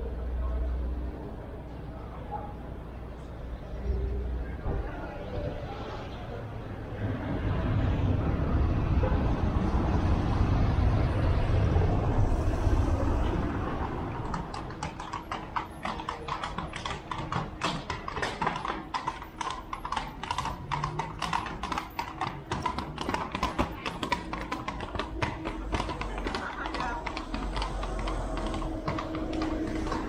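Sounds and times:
low rumble: 6.8 - 15.0, 25.0 - 30.0
horse hooves clip-clopping: 13.4 - 30.0.

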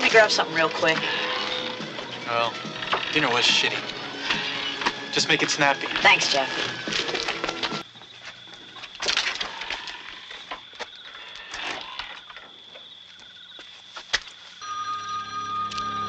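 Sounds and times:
sustained film score tones: 0.0 - 7.8, 14.6 - 16.0
crickets trilling: 0.0 - 16.0.

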